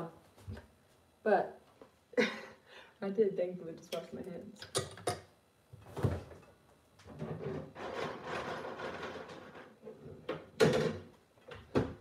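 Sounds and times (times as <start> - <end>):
items rustling and clattering: 4.7 - 12.0.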